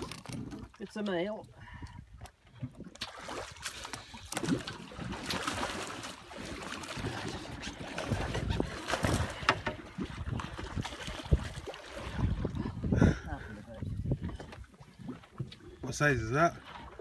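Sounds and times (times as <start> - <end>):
water splashing and churning: 0.0 - 17.0
wind on microphone: 7.0 - 15.2.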